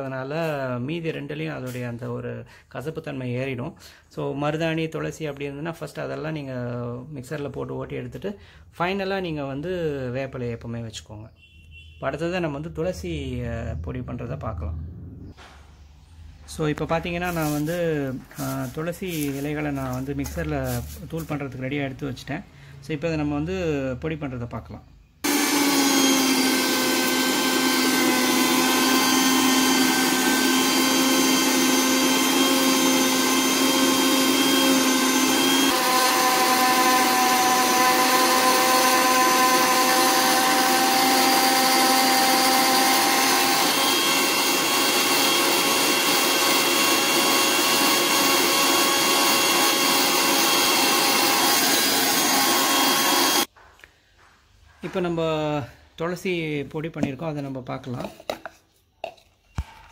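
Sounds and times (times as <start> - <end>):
grinding hiss of leaves: 17.3 - 19.9
mixer grinder motor whine: 25.2 - 53.5.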